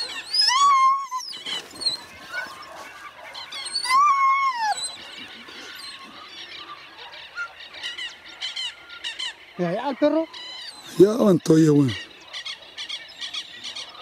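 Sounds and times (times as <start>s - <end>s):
dog whining: 0.0s - 6.2s.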